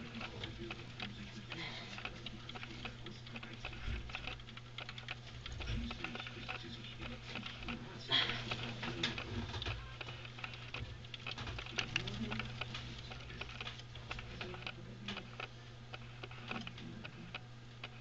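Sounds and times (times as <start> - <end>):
mouse running in wooden wheel: 0.0 - 18.0.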